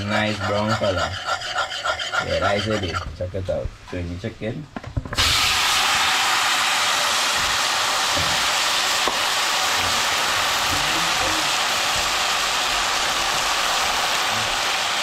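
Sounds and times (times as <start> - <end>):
chicken sizzling in hot oil: 5.2 - 15.0.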